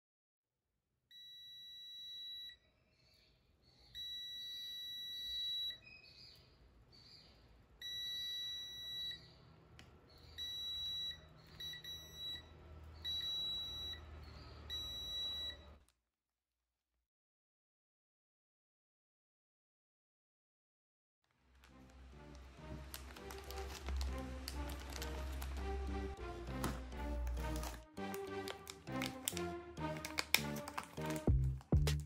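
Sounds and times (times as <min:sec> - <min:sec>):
multimeter continuity beeps: 0:01.1 - 0:02.6, 0:04.0 - 0:06.2, 0:07.8 - 0:09.4, 0:10.2 - 0:15.8.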